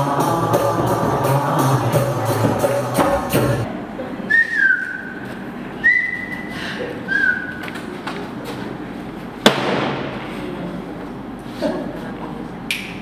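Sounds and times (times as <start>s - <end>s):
person whistling: 4.3s - 5.2s, 5.8s - 6.5s, 7.1s - 7.6s
sharp thump: 9.4s - 10.2s.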